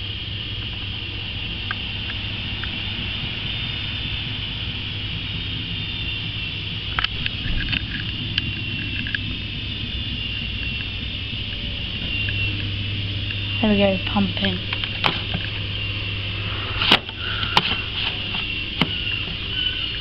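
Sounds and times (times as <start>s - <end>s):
washing machine spinning: 0.0s - 20.0s.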